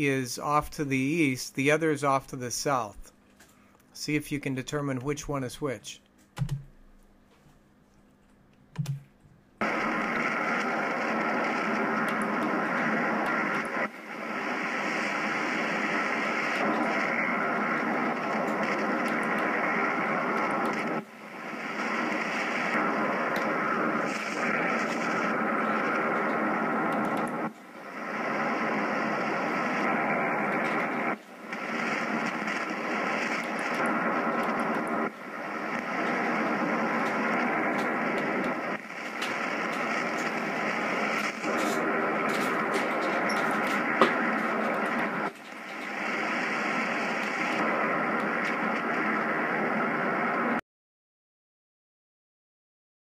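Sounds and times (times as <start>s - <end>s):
radio static hiss: 0.0s - 6.0s, 9.6s - 50.6s
faint radio tones: 0.0s - 6.6s, 9.6s - 50.6s
sharp click: 6.2s - 6.8s, 8.8s - 9.1s.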